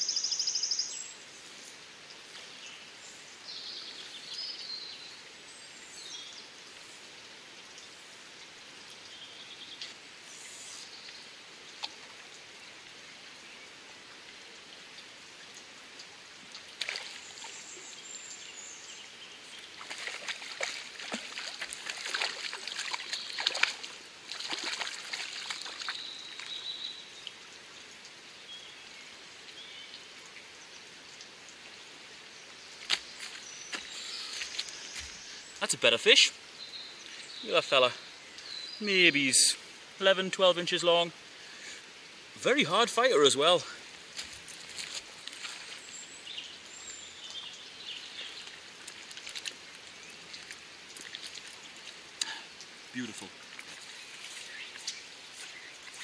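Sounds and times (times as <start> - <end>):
birds singing: 0.0 - 1.2, 2.4 - 6.6, 16.9 - 27.3, 32.3 - 41.8, 45.2 - 48.8, 49.6 - 56.0
fish splashing at water surface: 19.7 - 26.5.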